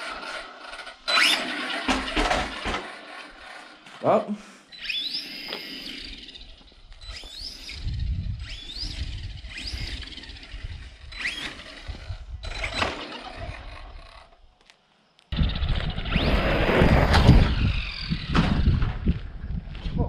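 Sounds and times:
electric motor whining: 0.0s - 4.0s, 4.7s - 14.5s, 15.4s - 19.1s
wind noise: 5.9s - 14.4s, 15.3s - 20.0s.

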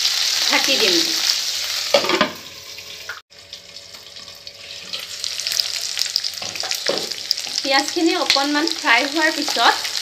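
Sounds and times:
onions sizzling in oil: 0.0s - 10.0s.

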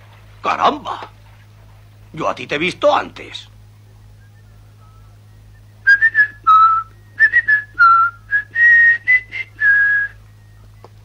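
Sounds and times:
person whistling a tune: 4.1s - 10.8s.

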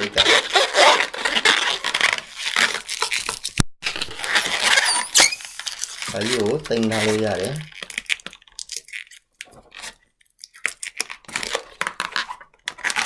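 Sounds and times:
balloon squeaking and rubbing: 0.0s - 8.0s.

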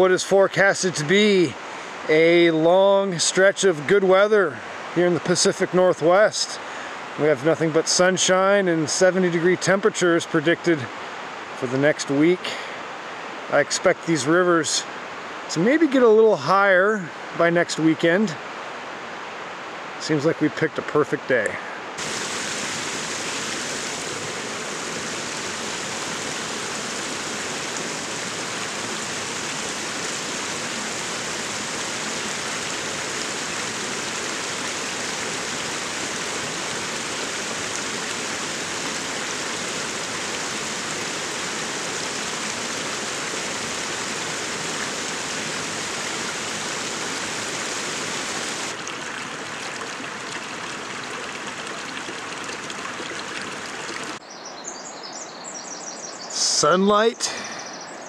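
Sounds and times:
creek rushing over stones: 0.0s - 54.2s.

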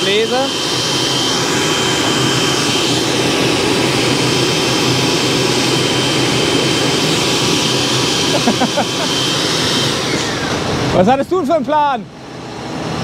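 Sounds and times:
blower fan rushing with whine: 0.0s - 13.0s.

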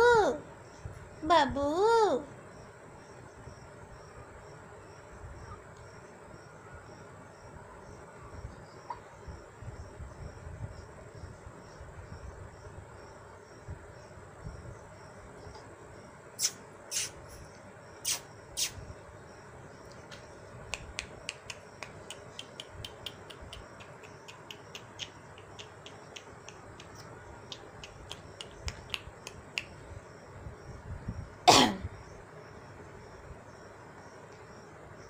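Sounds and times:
crickets chirring: 0.0s - 35.0s
sharp clicks: 19.9s - 29.7s.

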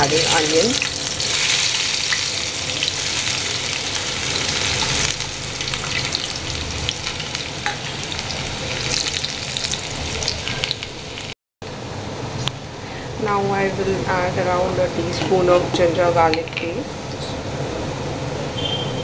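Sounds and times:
onion sizzling in hot oil: 0.0s - 11.4s.

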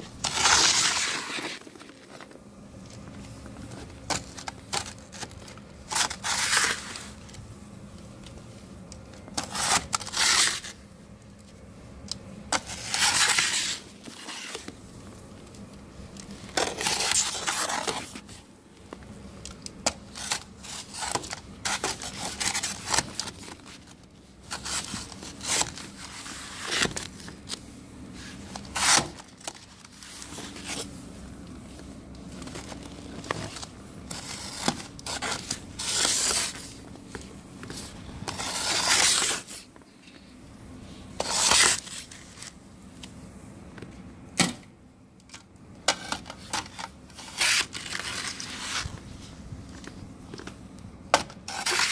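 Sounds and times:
snow shovel scraping on wood: 0.2s - 2.1s.

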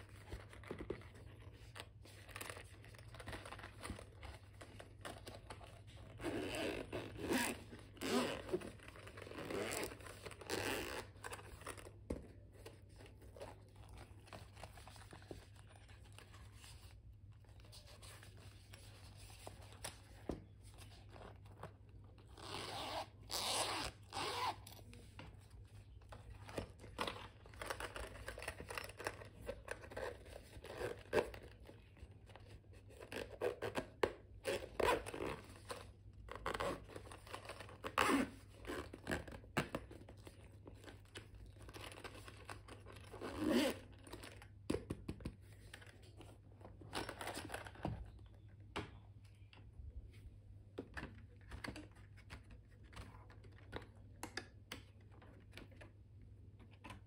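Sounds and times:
zipper being drawn: 6.2s - 8.6s, 9.2s - 11.1s, 22.3s - 24.8s.

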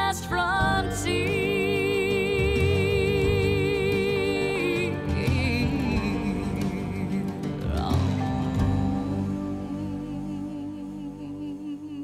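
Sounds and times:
country song: 0.0s - 12.0s
singer holding long vibrato note: 8.0s - 12.0s.

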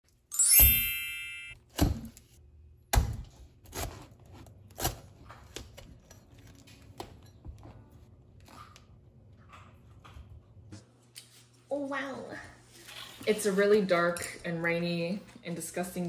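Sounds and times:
bright chime: 0.3s - 1.6s
cleaver chopping fruit husk: 2.9s - 4.1s.

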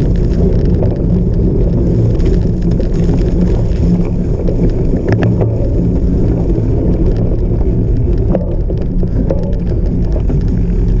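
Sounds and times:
bicycle clicks and rattles: 0.0s - 11.0s
wind buffeting microphone: 0.0s - 11.0s.

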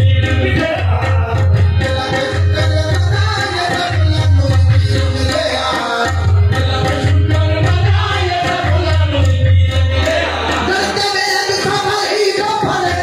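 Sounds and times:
tabla and drums beating: 0.0s - 13.0s.

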